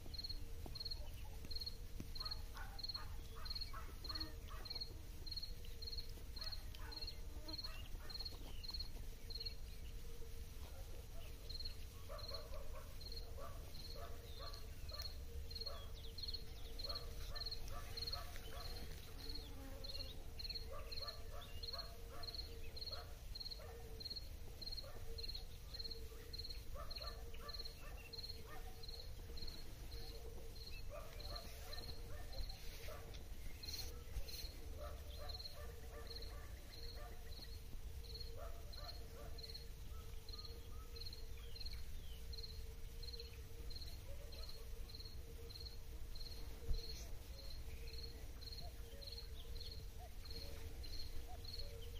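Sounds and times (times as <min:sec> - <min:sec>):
cricket chirping: 0:00.0 - 0:51.9
soft crackles and rustling: 0:17.0 - 0:19.6, 0:30.8 - 0:35.0.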